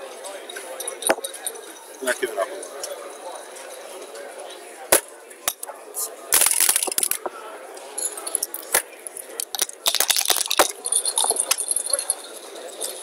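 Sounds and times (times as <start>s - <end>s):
dice rattling in a cup: 6.4s - 7.3s, 8.3s - 12.2s.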